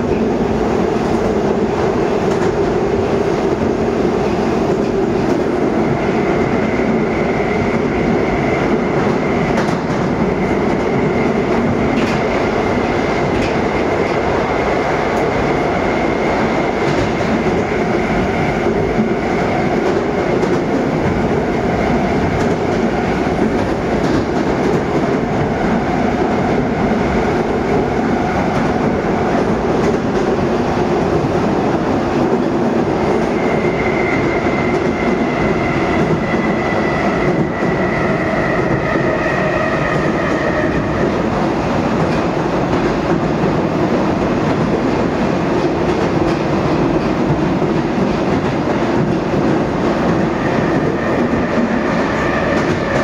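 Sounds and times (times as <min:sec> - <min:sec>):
train wheels rumbling on rail: 0:00.0 - 0:53.0.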